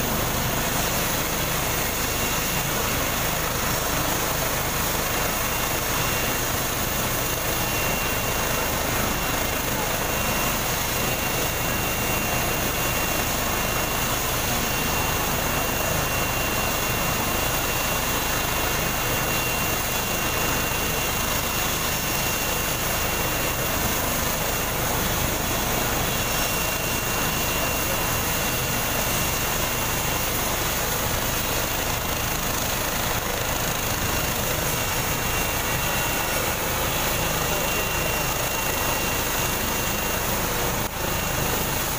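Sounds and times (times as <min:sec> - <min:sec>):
helicopter engine and rotor: 0:00.0 - 0:41.9.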